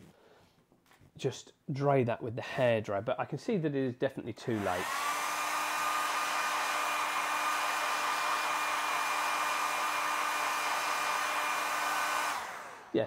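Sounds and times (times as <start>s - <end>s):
hair dryer running: 4.6s - 13.0s.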